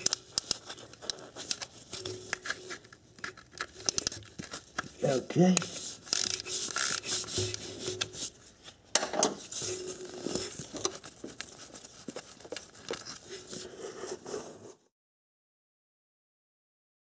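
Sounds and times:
scraping and rustling: 0:00.0 - 0:14.9
ratcheting wrench clicks: 0:06.1 - 0:07.6.

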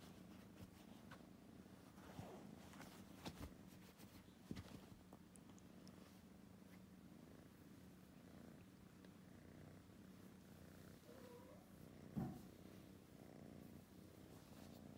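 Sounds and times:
kitten purring: 0:00.0 - 0:14.9
soft thump: 0:12.1 - 0:12.5.

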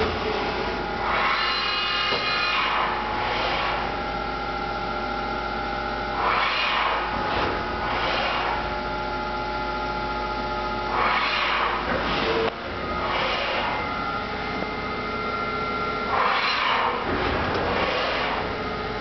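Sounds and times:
machine hum with held tones: 0:00.0 - 0:19.0
rush of machine noise: 0:01.0 - 0:03.9, 0:06.2 - 0:08.7, 0:10.9 - 0:14.8, 0:15.4 - 0:18.8.

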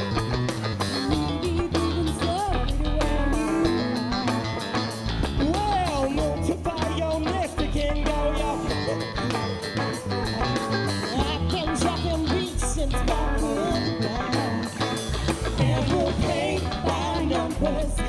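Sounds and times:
live rock band: 0:00.0 - 0:18.0
sliding electric guitar lead: 0:00.0 - 0:18.0.

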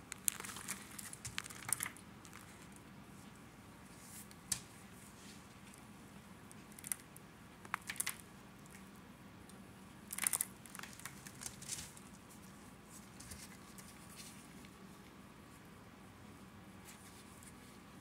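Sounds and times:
cornstarch crunching and crackling: 0:00.0 - 0:02.8, 0:10.1 - 0:12.0.

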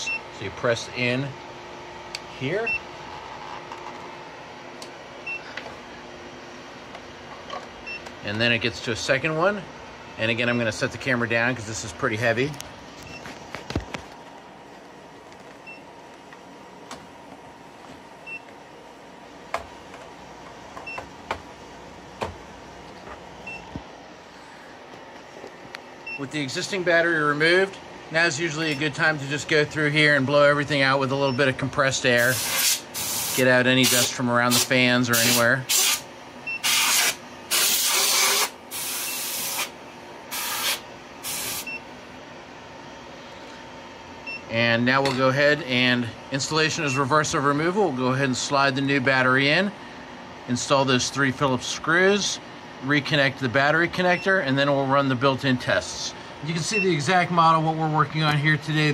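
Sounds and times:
equipment fans whirring: 0:00.0 - 0:58.9
compressed air hissing bursts: 0:32.2 - 0:41.7.

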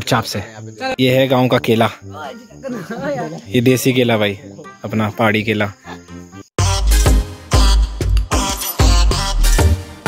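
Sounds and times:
electronic music with heavy bass: 0:06.6 - 0:10.0.

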